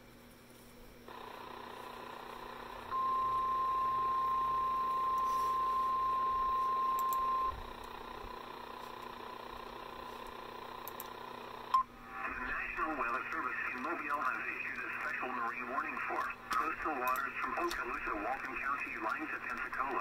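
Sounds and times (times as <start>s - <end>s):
radio hiss: 1.1s - 4.3s, 5.0s - 20.0s
steady high alarm tone: 1.1s - 7.6s.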